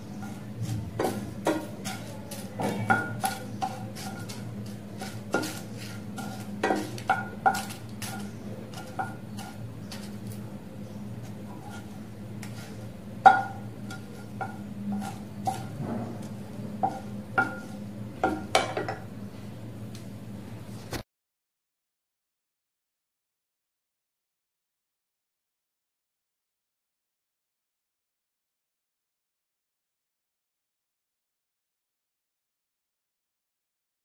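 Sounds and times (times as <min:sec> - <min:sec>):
wooden spatula scraping frying pan: 0:00.1 - 0:10.4, 0:11.2 - 0:19.0
spices clinking in pan: 0:01.0 - 0:10.3, 0:11.6 - 0:15.7, 0:16.8 - 0:19.0.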